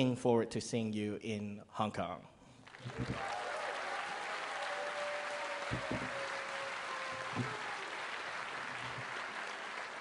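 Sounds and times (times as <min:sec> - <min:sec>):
audience applause: 0:02.7 - 0:10.0.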